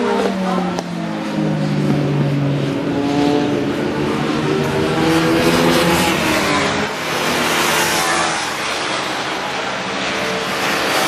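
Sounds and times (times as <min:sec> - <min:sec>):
motorcycle engines accelerating: 0:00.0 - 0:11.0.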